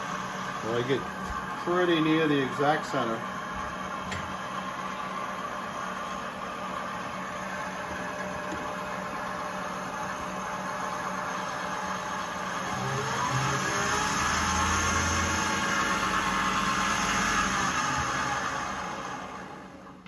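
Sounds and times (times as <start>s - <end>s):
metal lathe motor hum: 0.0s - 20.0s
drill cutting metal whine: 9.6s - 19.5s.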